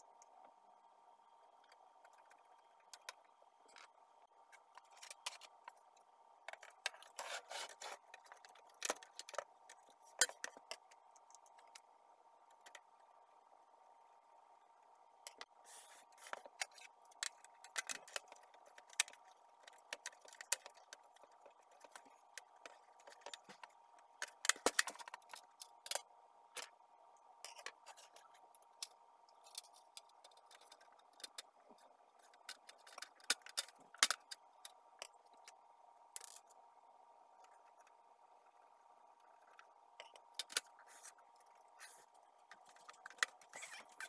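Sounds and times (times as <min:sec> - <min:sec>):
plastic parts clicking and knocking: 0:01.6 - 0:11.8, 0:16.2 - 0:26.8, 0:27.5 - 0:35.6, 0:39.2 - 0:40.8, 0:42.4 - 0:44.0.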